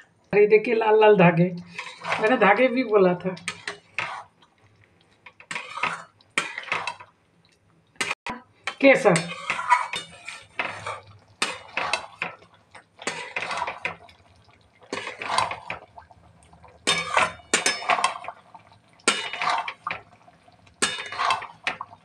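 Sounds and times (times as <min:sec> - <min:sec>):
spatula scraping pan of gravy: 0:01.7 - 0:02.5, 0:03.5 - 0:04.4, 0:05.3 - 0:07.1, 0:08.0 - 0:14.1, 0:14.8 - 0:15.8, 0:16.8 - 0:18.4, 0:19.0 - 0:20.1, 0:20.8 - 0:21.9.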